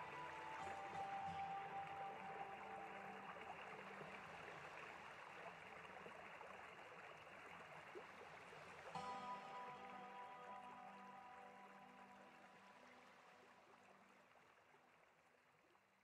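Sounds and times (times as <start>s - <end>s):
soft background music: 0.0s - 5.8s, 8.9s - 14.4s
faint steady hiss: 0.0s - 16.0s.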